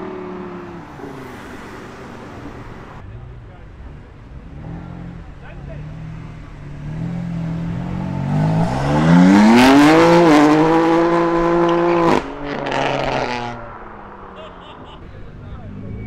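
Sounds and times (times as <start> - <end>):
car engine revving hard: 6.8 - 13.8.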